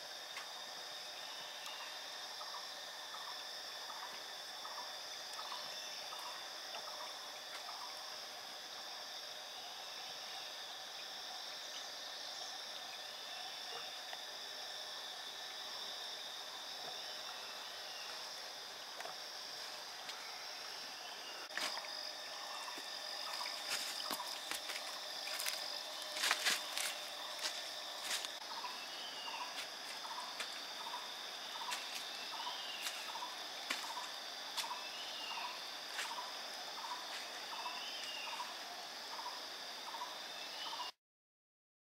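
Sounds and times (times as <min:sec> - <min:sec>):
high insect drone: 0:00.0 - 0:41.0
footsteps on dry leaves: 0:23.3 - 0:28.4, 0:32.8 - 0:34.8.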